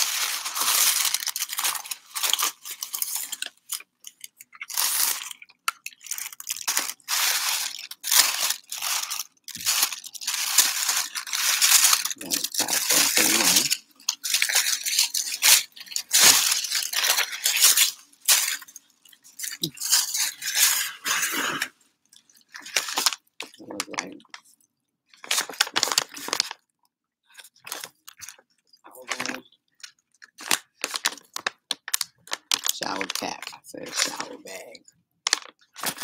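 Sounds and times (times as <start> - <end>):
tissue paper crinkling: 0.0 - 24.4, 25.2 - 26.6, 27.3 - 28.4, 30.2 - 36.0.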